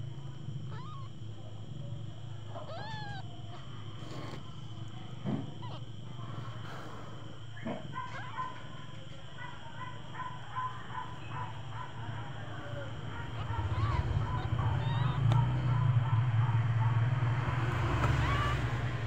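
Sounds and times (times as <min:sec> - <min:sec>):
kittens squeaking: 0:00.6 - 0:01.2, 0:02.4 - 0:08.6, 0:10.5 - 0:16.6, 0:17.9 - 0:19.0
cat purring: 0:01.8 - 0:07.4, 0:11.0 - 0:16.9.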